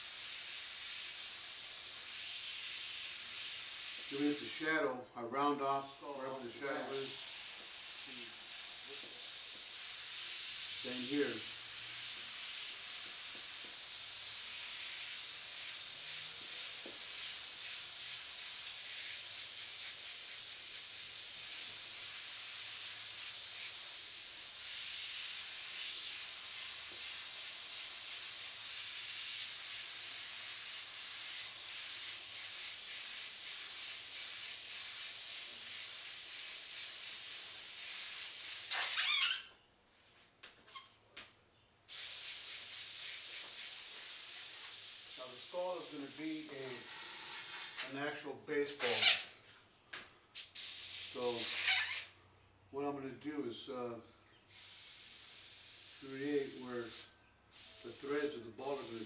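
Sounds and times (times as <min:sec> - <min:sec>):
airbrush spraying hiss: 0:00.0 - 0:39.5, 0:41.9 - 0:49.3, 0:50.3 - 0:52.2, 0:54.5 - 0:59.0.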